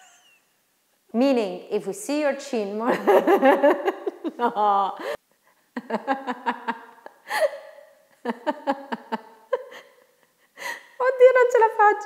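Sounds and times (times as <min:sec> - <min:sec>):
woman laughing: 0:00.0 - 0:00.4, 0:02.8 - 0:05.2, 0:05.8 - 0:10.8.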